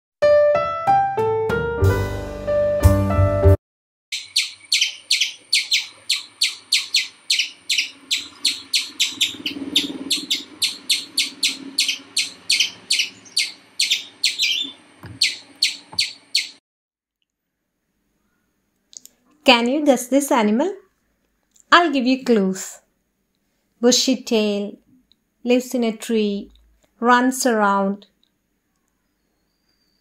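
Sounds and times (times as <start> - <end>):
high-pitched chirping calls: 4.1 - 16.6.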